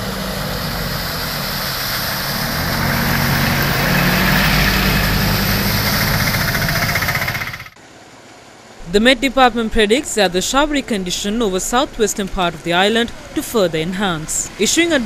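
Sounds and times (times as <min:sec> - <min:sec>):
truck engine rattling: 0:00.0 - 0:07.8, 0:08.9 - 0:15.0
tyres splashing water: 0:00.0 - 0:07.8
vehicle engines running: 0:00.0 - 0:07.8, 0:08.8 - 0:15.0.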